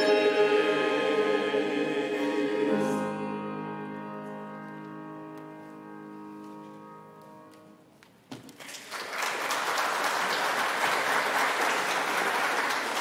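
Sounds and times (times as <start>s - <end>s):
choir holding a chord: 0.0s - 4.3s
congregation applauding: 8.5s - 13.0s.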